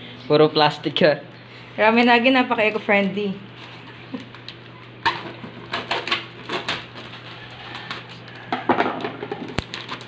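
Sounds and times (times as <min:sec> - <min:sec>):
plastic bag crinkling: 0:09.4 - 0:10.0.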